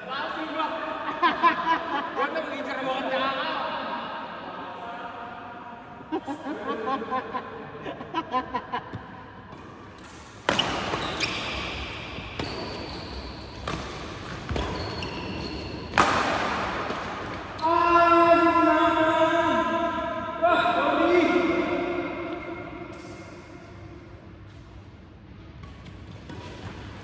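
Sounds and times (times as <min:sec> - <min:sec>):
racket striking shuttlecock: 0:09.5 - 0:17.6
shoes squeaking on court floor: 0:09.5 - 0:17.8, 0:24.2 - 0:27.0
person shouting: 0:17.6 - 0:21.6.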